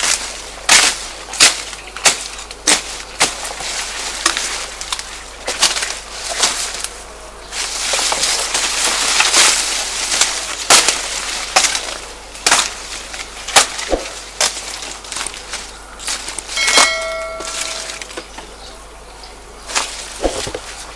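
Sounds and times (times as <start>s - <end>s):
knife chopping sugarcane: 0.0s - 6.6s, 9.2s - 12.8s
rustling hiss: 0.0s - 20.9s.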